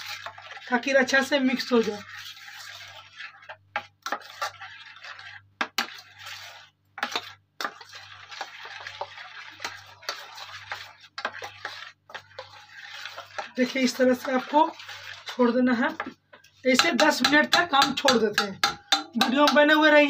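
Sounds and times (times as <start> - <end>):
metal spoon stirring batter: 0.0 - 20.0
spoon clinking against pot: 16.8 - 19.8.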